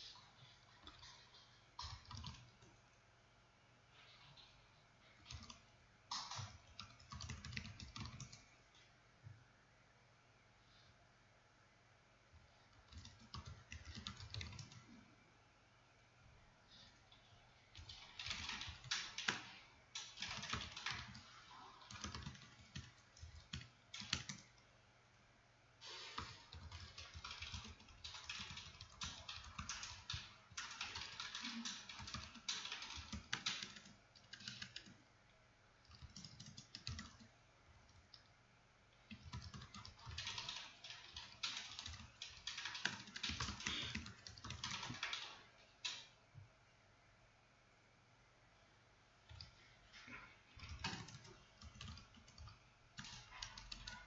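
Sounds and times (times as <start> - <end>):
typing on computer keyboard: 0.0 - 2.8, 5.2 - 8.5, 12.8 - 14.9, 17.8 - 24.6, 25.8 - 35.0, 35.8 - 37.3, 39.1 - 46.2, 50.6 - 54.0.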